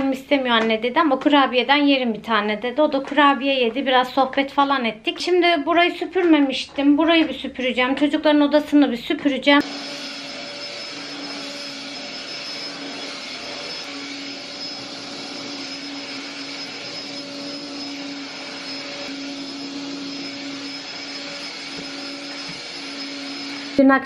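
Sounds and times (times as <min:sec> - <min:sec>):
vacuum cleaner running: 0:09.6 - 0:24.0.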